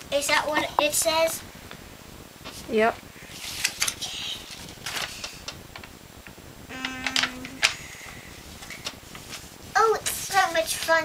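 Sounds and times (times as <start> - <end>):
paper shuffling: 3.3 - 5.5, 8.5 - 11.0
hum-like tone: 6.6 - 8.9.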